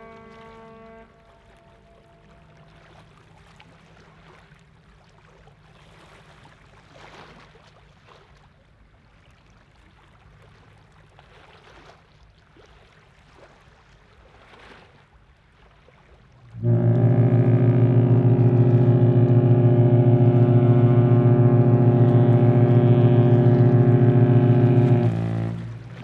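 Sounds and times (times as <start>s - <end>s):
ship horn blasts: 0.0s - 7.6s, 16.3s - 26.0s
low rumble of ship engines: 0.0s - 26.0s
water lapping: 0.0s - 26.0s
steady low hum: 16.5s - 26.0s.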